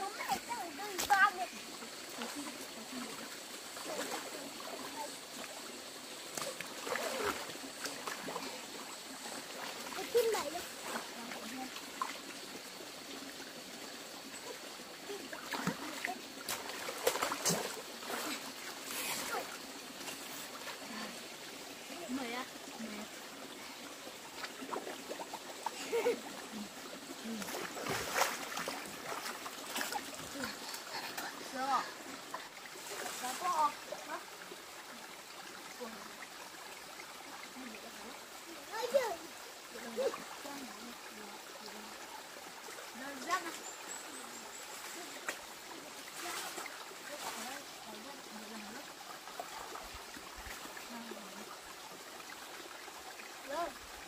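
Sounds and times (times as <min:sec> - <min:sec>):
stream running over rocks: 0:00.0 - 0:54.0
water splashes: 0:00.0 - 0:54.0
child splashing in water: 0:06.4 - 0:08.6, 0:15.3 - 0:19.5, 0:27.2 - 0:31.3.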